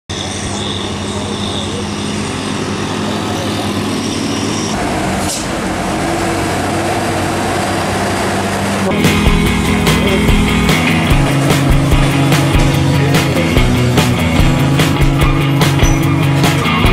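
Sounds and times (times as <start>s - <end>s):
heavy truck diesel engines: 0.1s - 16.9s.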